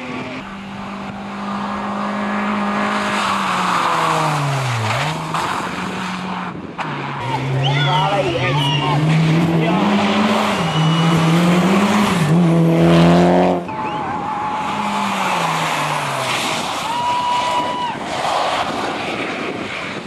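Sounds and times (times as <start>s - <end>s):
rally car engine revving: 0.0s - 17.4s
rally car passing: 0.0s - 20.0s
high squeal: 10.4s - 11.5s.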